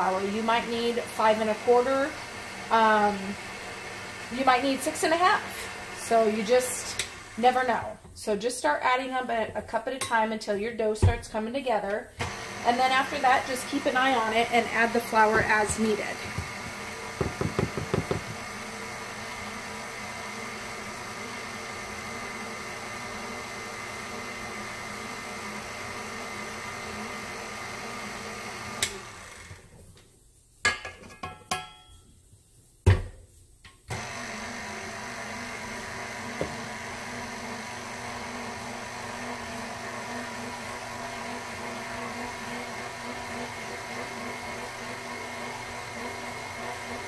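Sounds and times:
stand mixer motor running: 2.2 - 4.3, 6.8 - 7.4, 12.2 - 29.6, 34.0 - 47.0.

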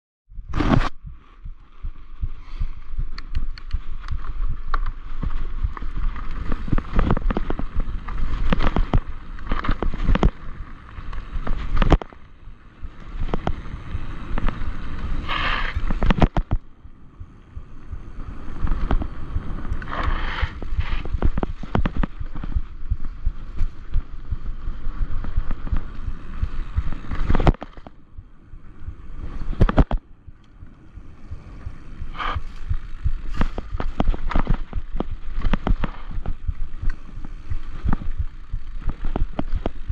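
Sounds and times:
low rumble: 0.3 - 39.9
bike rattling over rocks: 3.8 - 16.7, 17.7 - 28.0, 30.8 - 39.9
bike tyres crunching over stones: 3.8 - 39.9
harsh scraping: 14.4 - 16.4, 18.7 - 22.7, 31.3 - 39.9.

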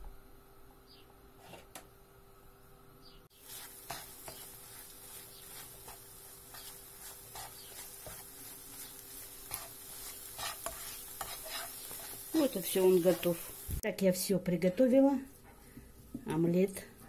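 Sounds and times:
egg sizzling in a pan: 3.3 - 13.8
spatula scraping a pan: 3.4 - 13.6.

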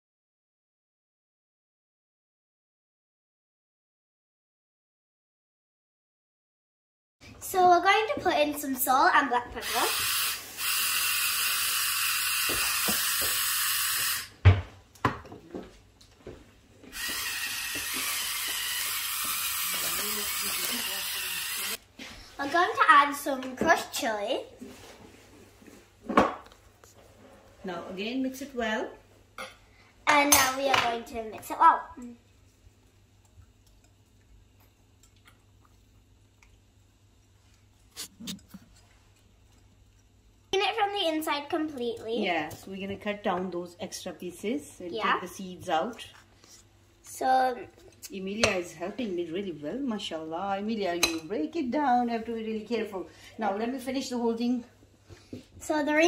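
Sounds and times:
electric mill grinding: 9.6 - 14.3, 16.9 - 21.8.

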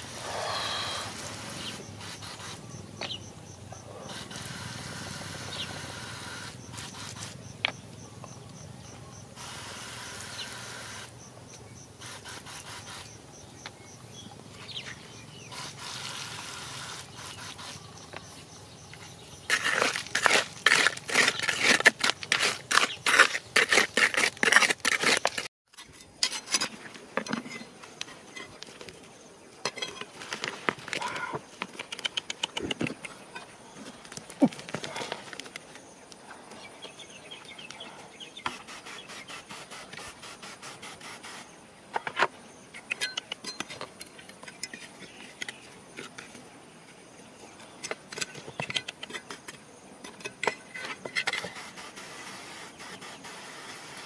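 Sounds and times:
scraping through gravelly soil: 14.6 - 28.8
trowel scraping wet mud: 19.0 - 27.7.

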